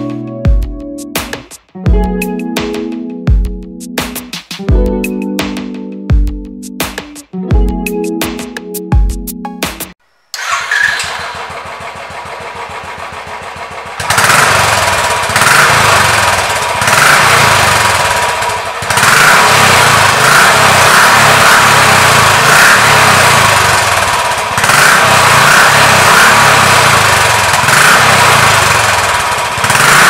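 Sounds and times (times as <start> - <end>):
motorcycle engine running: 10.4 - 30.0.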